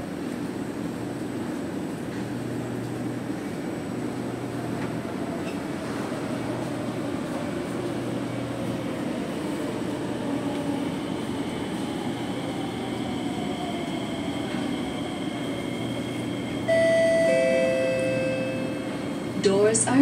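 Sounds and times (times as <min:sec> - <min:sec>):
train humming: 0:00.0 - 0:20.0
two-tone door chime: 0:16.7 - 0:19.0.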